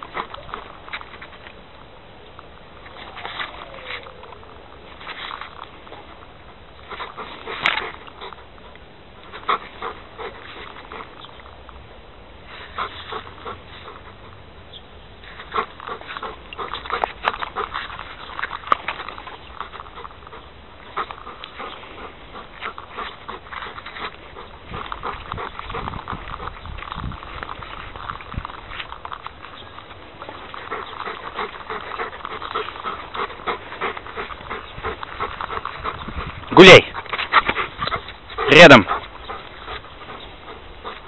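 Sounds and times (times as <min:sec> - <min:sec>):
dog panting and whimpering: 0:00.0 - 0:01.1, 0:06.8 - 0:11.4, 0:12.6 - 0:14.4, 0:15.3 - 0:41.0
footsteps on dirt path: 0:15.2 - 0:41.0.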